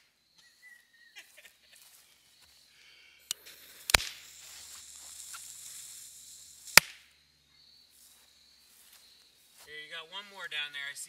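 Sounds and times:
burning fuse hissing: 0:02.8 - 0:07.2.

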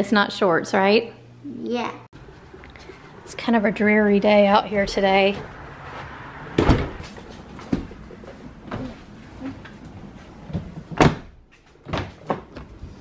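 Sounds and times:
car door slamming: 0:06.6 - 0:07.1.

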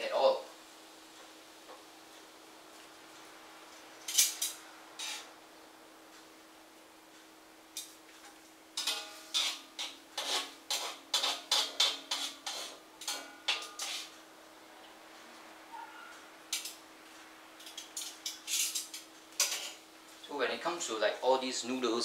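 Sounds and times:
metal utensil clinking on cookware: 0:08.8 - 0:14.1, 0:17.6 - 0:19.8.

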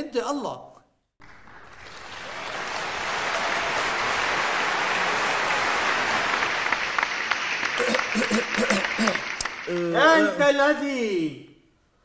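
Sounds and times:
crowd applauding: 0:01.2 - 0:10.5.

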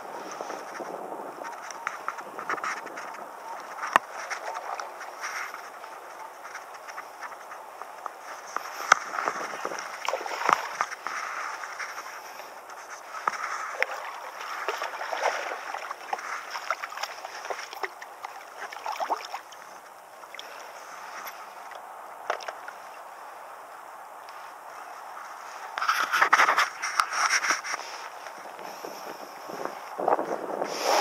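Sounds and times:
fish splashing in water: 0:08.6 - 0:12.0, 0:13.2 - 0:19.6.

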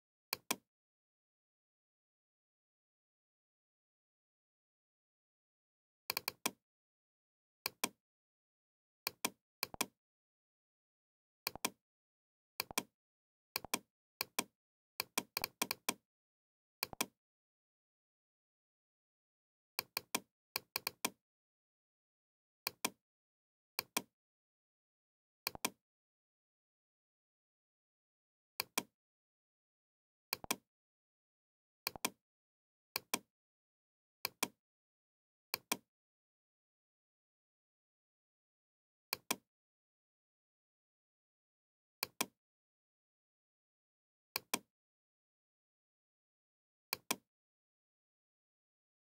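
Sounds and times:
computer mouse button clicking: 0:30.4 - 0:30.6.

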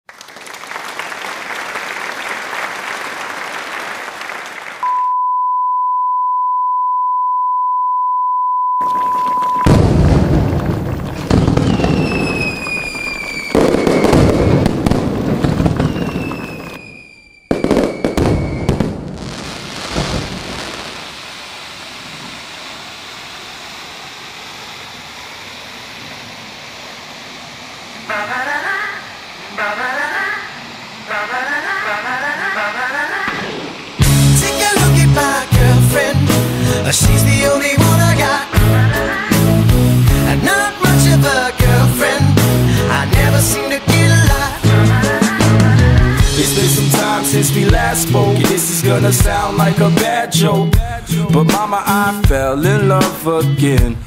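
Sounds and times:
unbroken beep tone: 0:04.8 - 0:09.8
loud bangs and crackles: 0:08.8 - 0:16.8, 0:17.5 - 0:23.5, 0:33.2 - 0:50.2
falling whistles: 0:08.8 - 0:27.5
steady noise: 0:18.4 - 0:52.2.

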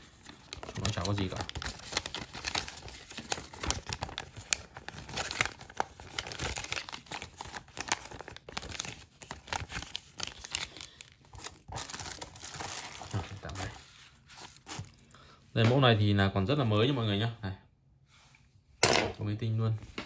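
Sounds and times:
paper leaflets rustling: 0:00.0 - 0:15.1
plastic bag crinkling: 0:00.0 - 0:15.1.

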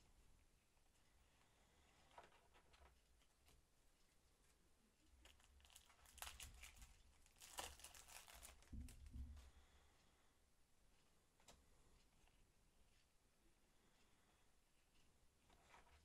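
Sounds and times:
foil wrapper crinkling: 0:05.2 - 0:09.1.

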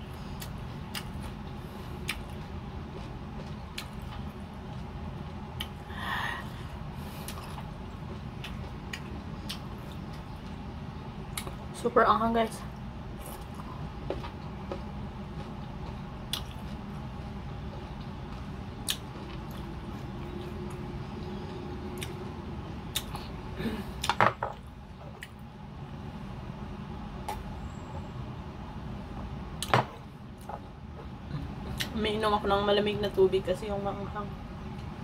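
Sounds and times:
low background hum: 0:00.0 - 0:35.0
chewing and mouth sounds: 0:00.2 - 0:05.8, 0:07.0 - 0:10.7, 0:12.7 - 0:23.4, 0:25.0 - 0:25.5, 0:31.2 - 0:32.0.

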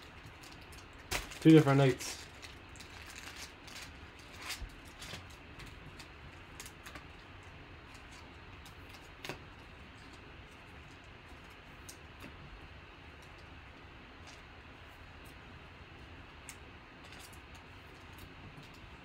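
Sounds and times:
plastic wrapper crinkling: 0:00.0 - 0:12.3.

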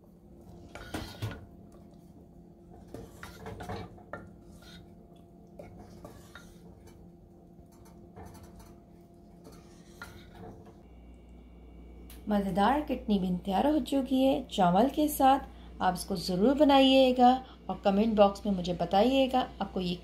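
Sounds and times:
faint steady hum: 0:00.0 - 0:20.0
ladle scraping a pot: 0:00.5 - 0:01.5, 0:02.7 - 0:10.8.

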